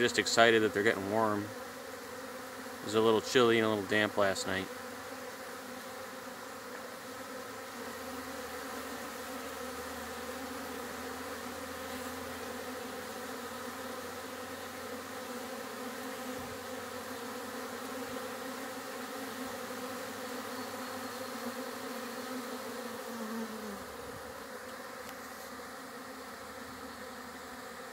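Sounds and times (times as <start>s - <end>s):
honeybees buzzing around a hive: 0.0s - 27.9s
single bee flying close by: 0.0s - 27.9s.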